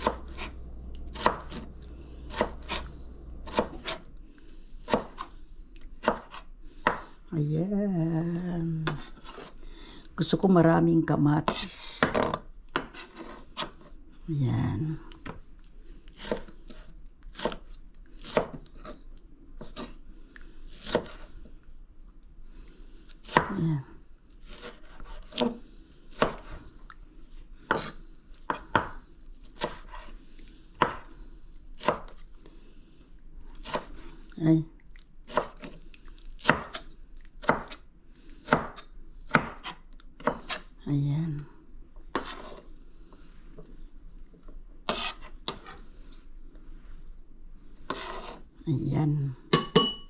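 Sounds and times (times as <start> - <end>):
knife chopping on cutting board: 0.0 - 0.5, 1.1 - 1.7, 2.3 - 2.8, 3.4 - 4.0, 4.8 - 5.3, 6.0 - 7.0, 27.7 - 28.9, 29.6 - 30.1, 30.8 - 31.1, 36.4 - 36.8, 37.4 - 37.8, 38.4 - 40.6.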